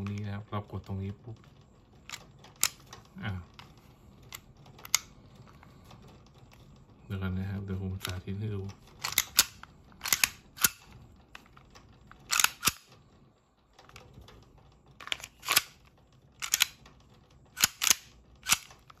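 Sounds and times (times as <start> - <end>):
pistol slide metallic clacks: 9.0 - 10.9, 12.3 - 12.9, 15.0 - 15.8, 16.4 - 16.8, 17.6 - 19.0.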